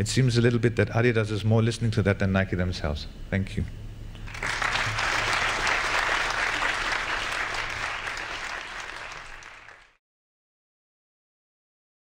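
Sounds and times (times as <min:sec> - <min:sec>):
audience applauding: 0:04.3 - 0:10.0.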